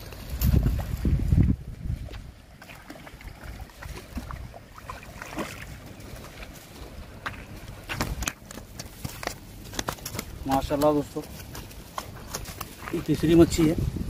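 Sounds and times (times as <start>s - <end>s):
water splashing: 2.0s - 10.4s
fish thumping on dirt: 7.2s - 13.1s.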